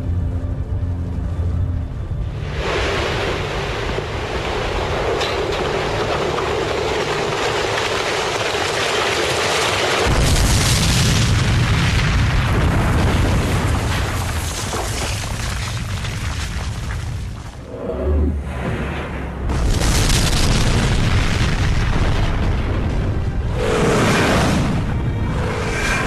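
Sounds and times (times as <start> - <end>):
deep rumble: 10.0 - 26.0
explosion roar: 17.6 - 26.0.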